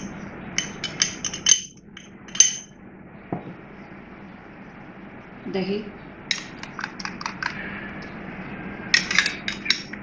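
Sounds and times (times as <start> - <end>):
glass bowl clinking: 0.0 - 2.7, 9.0 - 10.0.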